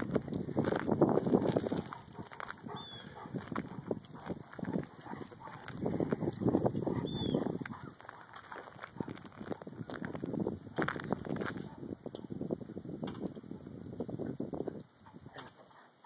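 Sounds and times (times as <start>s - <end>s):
footsteps crunching on snow: 0.0s - 11.8s.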